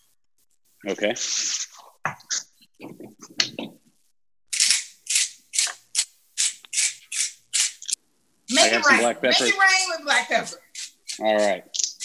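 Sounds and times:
pepper mill grinding: 0:04.5 - 0:08.0, 0:10.7 - 0:12.0.

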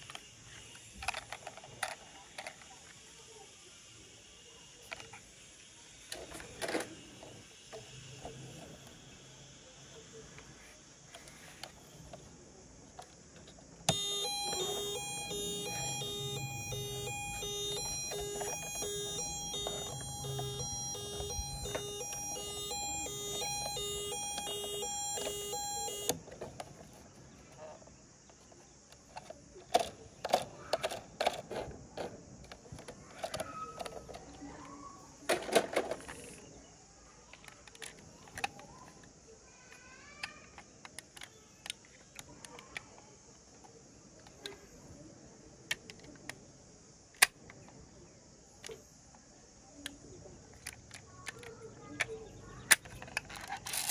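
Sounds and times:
plastic toy clicks and knocks: 0:00.0 - 0:03.0, 0:28.9 - 0:34.5, 0:35.3 - 0:36.3, 0:37.3 - 0:39.1, 0:40.2 - 0:43.0, 0:45.7 - 0:46.4, 0:49.8 - 0:53.9
toy siren beeping: 0:13.9 - 0:26.2.

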